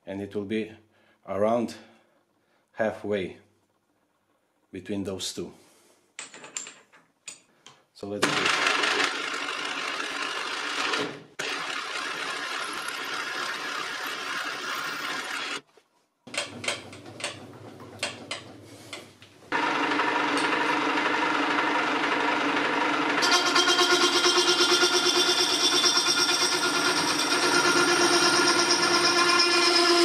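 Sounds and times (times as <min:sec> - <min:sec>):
drill boring through metal bar: 0:08.2 - 0:15.6, 0:19.5 - 0:30.0
slitting saw ringing whine: 0:23.1 - 0:30.0.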